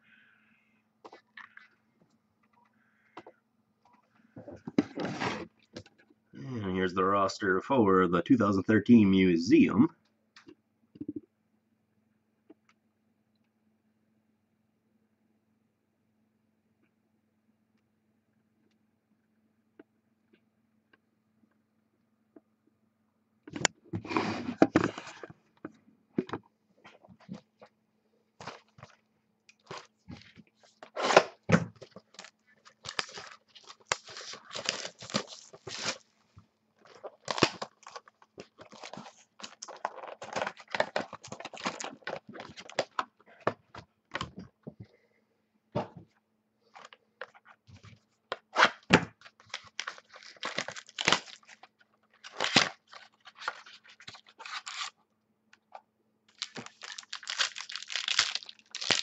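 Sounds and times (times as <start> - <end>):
packaging crinkling and tearing: 30.7 - 36.1, 36.8 - 43.1, 48.5 - 55.0, 56.3 - 59.0.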